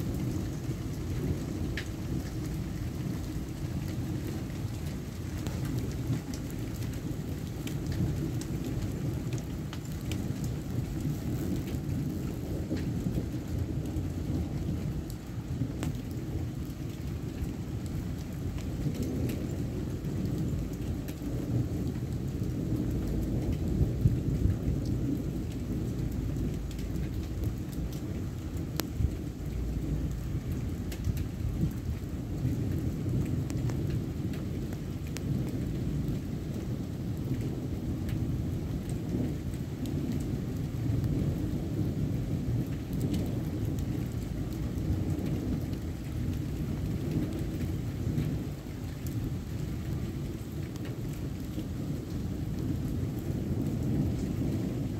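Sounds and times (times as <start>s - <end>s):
heavy rain: 0.0s - 54.9s
raindrops ticking close by: 0.0s - 54.9s
thunder rumbling: 0.0s - 54.9s.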